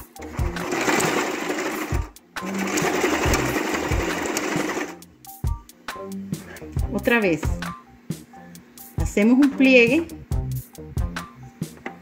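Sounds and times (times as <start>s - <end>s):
sewing machine stitching: 0.2s - 5.0s.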